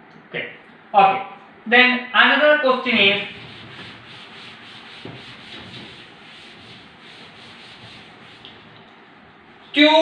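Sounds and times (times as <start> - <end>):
eraser rubbing chalkboard: 3.1 - 8.7.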